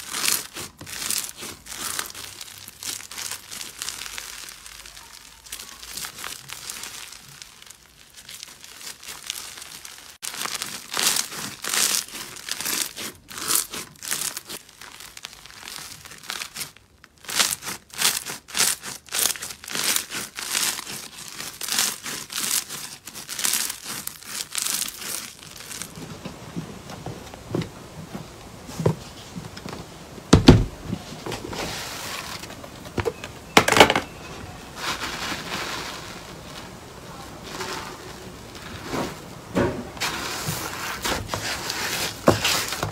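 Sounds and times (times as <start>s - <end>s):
crunchy slime crackling and popping: 0.0s - 26.0s
deep thuds: 30.3s - 31.4s.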